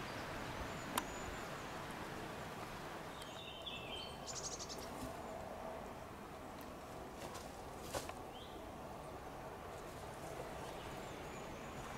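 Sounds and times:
small bird singing a trill: 0:03.1 - 0:04.9.

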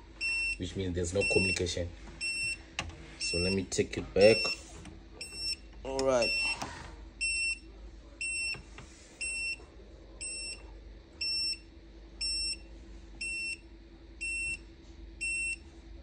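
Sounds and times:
alarm buzzer beeping: 0:00.2 - 0:02.6, 0:03.2 - 0:05.6, 0:06.2 - 0:07.6.

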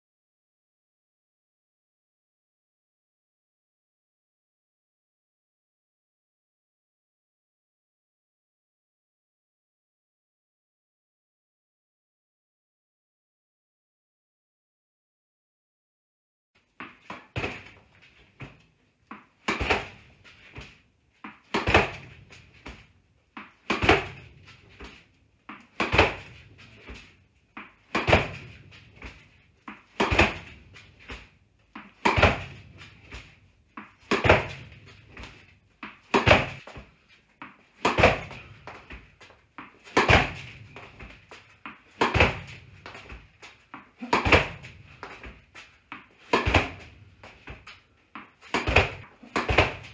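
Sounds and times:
ball knocking off rebounder and floor: 0:16.8 - 0:49.9
racket hitting tennis ball: 0:16.8 - 0:49.9.

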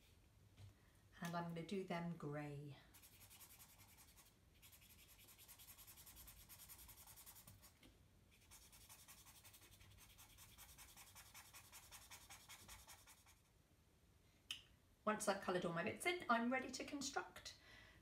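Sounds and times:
felt-tip pen scratching on card: 0:02.9 - 0:07.7, 0:08.4 - 0:13.3.

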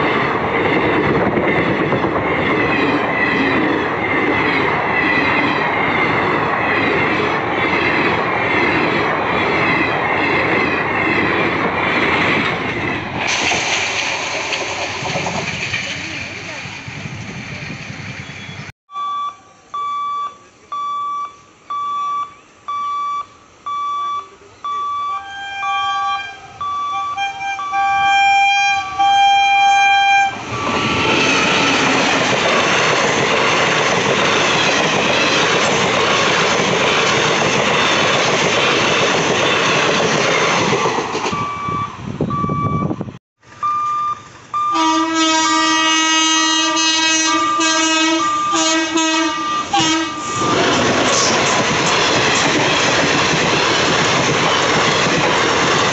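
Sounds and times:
train wheels clattering past: 0:00.0 - 0:18.6, 0:30.1 - 0:41.7, 0:47.2 - 0:55.9
electronic warning beep: 0:18.9 - 0:28.0, 0:41.3 - 0:44.8, 0:48.2 - 0:48.6, 0:49.4 - 0:50.8
train horn blasts: 0:25.0 - 0:30.8, 0:44.7 - 0:50.6
locomotive horn blowing long: 0:25.0 - 0:31.0, 0:44.6 - 0:50.6.

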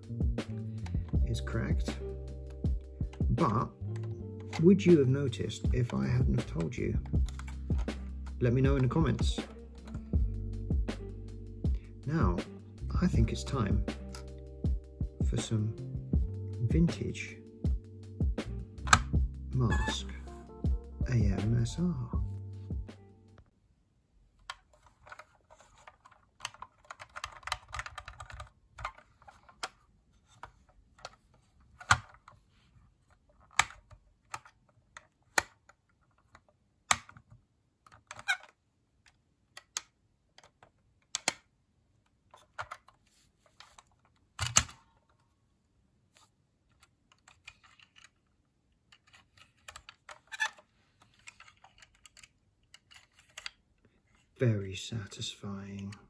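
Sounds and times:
plastic toy clicks and snaps: 0:24.4 - 0:29.8, 0:31.8 - 0:32.4, 0:33.4 - 0:41.5, 0:43.6 - 0:44.9, 0:48.8 - 0:53.6
soft handling rustle: 0:24.4 - 0:36.6, 0:42.2 - 0:45.4, 0:46.1 - 0:56.0.

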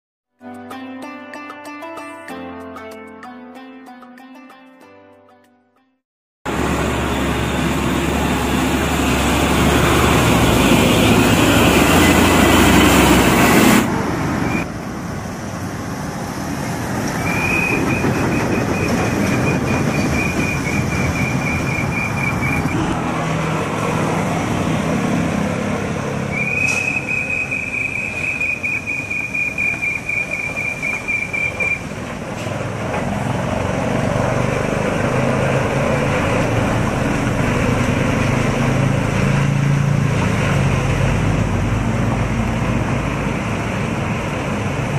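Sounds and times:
diesel trucks passing: 0:06.5 - 0:44.9
high thin squeal: 0:26.3 - 0:31.9.

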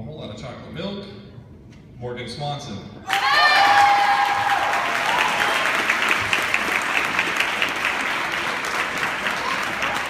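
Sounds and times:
audience applauding: 0:03.1 - 0:10.0.

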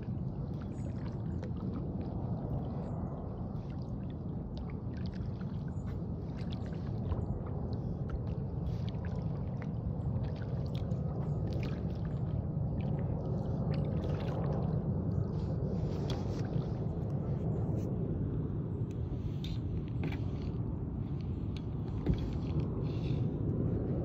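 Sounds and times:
paddle dipping in water: 0:00.0 - 0:18.0, 0:18.8 - 0:23.4
low water rush: 0:00.0 - 0:24.0
water splashing and dripping: 0:03.5 - 0:16.8.

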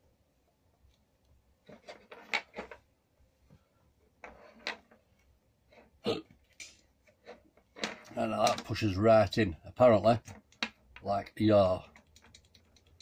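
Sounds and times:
plastic connector clicks and rustles: 0:11.9 - 0:13.0.

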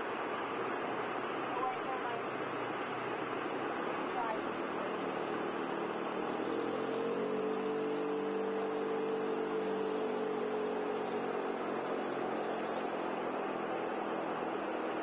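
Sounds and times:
floodwater rushing: 0:00.0 - 0:15.0
vehicle engine hum: 0:00.0 - 0:15.0.

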